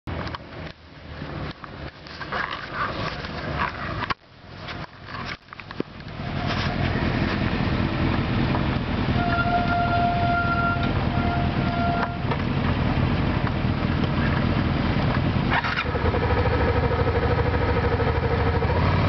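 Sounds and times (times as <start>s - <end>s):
uneven broken noise: 0.1s - 16.2s
steady high tone: 9.1s - 12.3s
motorcycle engine idling: 9.4s - 19.0s.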